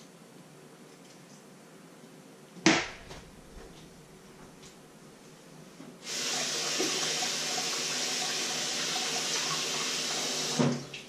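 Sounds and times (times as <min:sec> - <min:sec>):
water running from tap: 0:06.0 - 0:11.0
kitchen tap turned on: 0:06.1 - 0:11.0.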